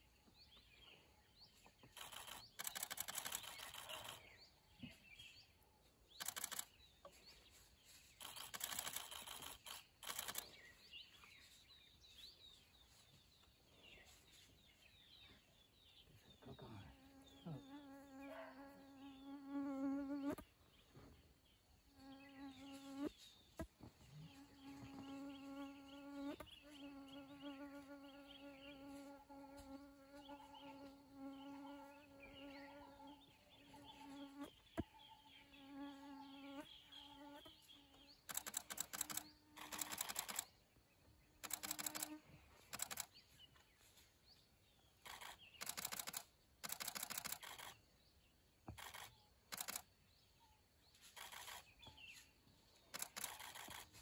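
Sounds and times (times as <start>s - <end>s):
camera shutter clicks: 2.0s - 4.2s, 8.2s - 10.5s, 38.3s - 40.4s, 41.4s - 42.1s, 45.1s - 47.8s, 48.8s - 49.8s, 53.0s - 53.8s
flying insect buzzing: 2.0s - 4.2s, 8.2s - 10.5s, 17.0s - 20.4s, 41.4s - 43.1s.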